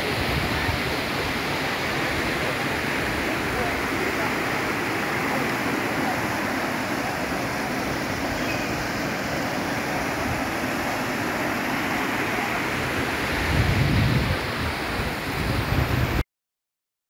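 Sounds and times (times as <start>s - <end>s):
river rushing over rocks: 0.0s - 16.2s
wind buffeting microphone: 12.5s - 16.2s.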